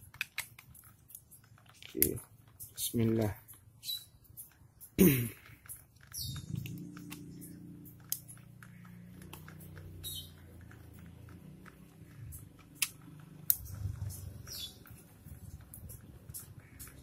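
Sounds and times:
screwdriver metallic clicks and scrapes: 0:00.0 - 0:04.9
low steady hum: 0:06.2 - 0:17.0.

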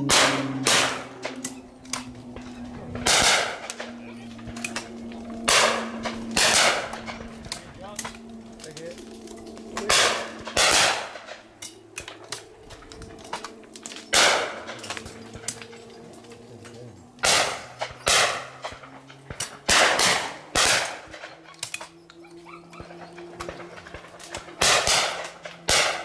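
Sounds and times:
shotgun shots: 0:00.0 - 0:01.4, 0:03.0 - 0:03.9, 0:05.5 - 0:07.3, 0:09.8 - 0:11.4, 0:14.1 - 0:14.9, 0:17.2 - 0:21.3, 0:23.4 - 0:26.0.

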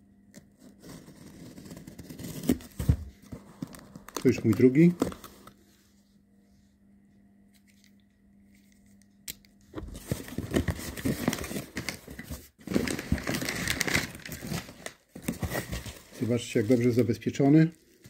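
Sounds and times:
paper packing rustling: 0:00.6 - 0:05.6, 0:09.8 - 0:18.0.

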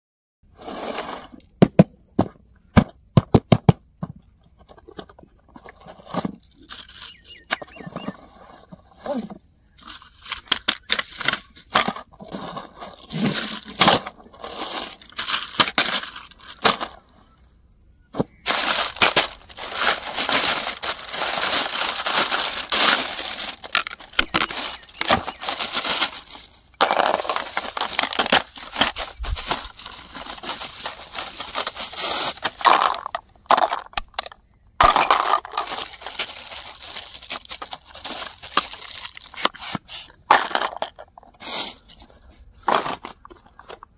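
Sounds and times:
plastic bags crinkling: 0:12.2 - 0:17.1, 0:18.4 - 0:34.0, 0:34.8 - 0:41.0.

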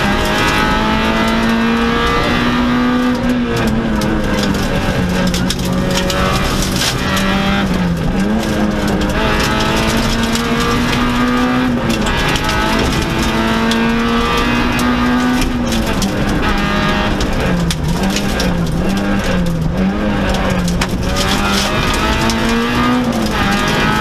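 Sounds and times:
rally car engine at high revs: 0:00.0 - 0:24.0
road noise: 0:00.0 - 0:24.0.

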